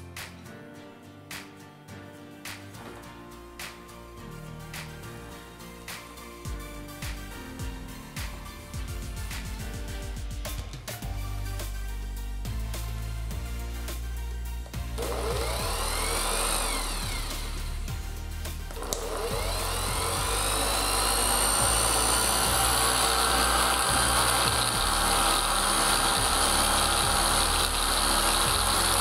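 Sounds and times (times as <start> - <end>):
orbital sander whining: 14.8 - 29.0.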